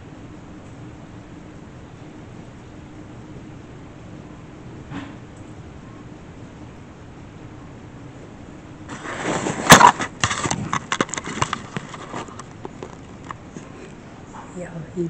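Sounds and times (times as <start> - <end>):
clicks and bumps: 8.9 - 13.4
camera handling rustle: 8.9 - 13.7.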